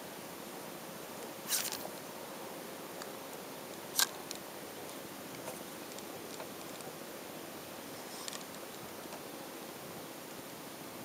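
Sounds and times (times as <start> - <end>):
hiss of wind and water: 0.0 - 11.0
handling clicks and rustles: 3.0 - 7.0.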